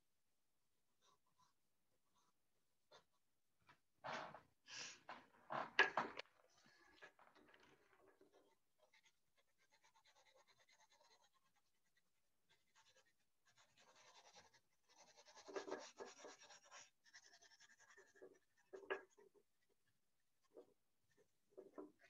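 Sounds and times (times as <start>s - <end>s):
pencil scratching on paper: 8.2s - 19.6s.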